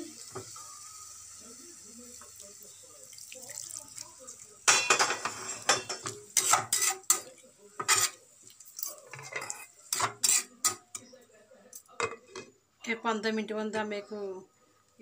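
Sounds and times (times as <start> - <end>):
metal spatula scraping a pan: 4.7 - 8.2, 9.0 - 10.8.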